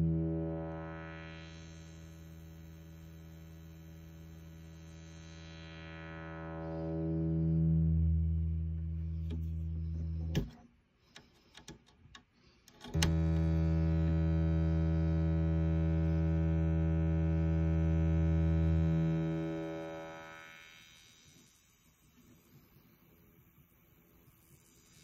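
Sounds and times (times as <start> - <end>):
synthesizer drone: 0.0 - 10.4, 13.0 - 20.7.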